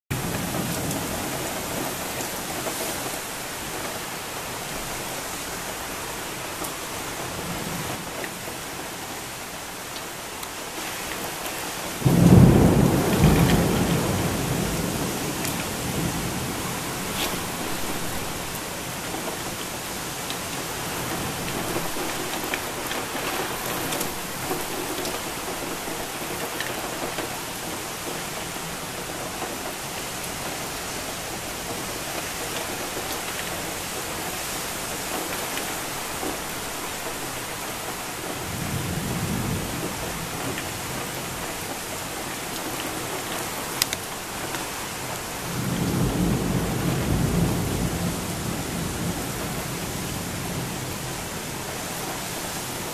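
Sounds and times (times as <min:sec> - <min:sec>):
heavy rain hissing: 0:00.1 - 0:52.9
thunder rumbling: 0:12.0 - 0:19.5, 0:45.4 - 0:52.2.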